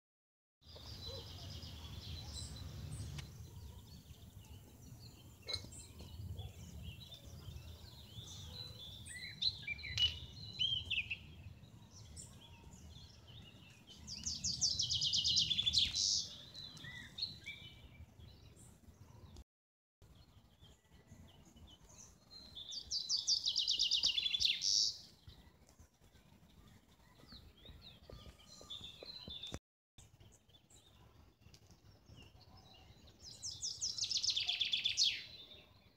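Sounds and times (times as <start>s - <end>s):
bird trilling song: 0.7s - 19.2s, 20.2s - 25.5s, 26.5s - 29.6s, 31.6s - 35.8s
birds singing and chirping: 0.7s - 19.4s, 20.1s - 35.9s.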